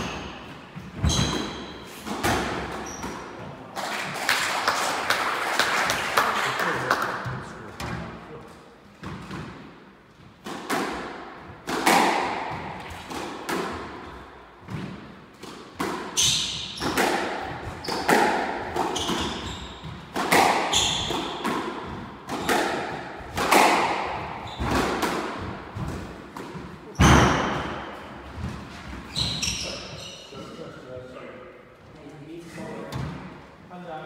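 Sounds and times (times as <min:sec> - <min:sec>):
squash ball hits echoing: 0:00.0 - 0:04.5, 0:10.4 - 0:29.8.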